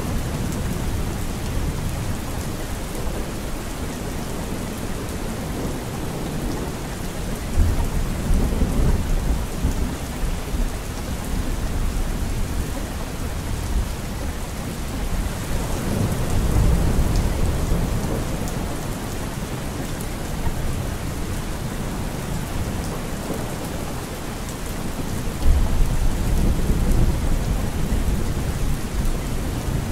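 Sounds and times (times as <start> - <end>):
steady rain: 0.0 - 29.9.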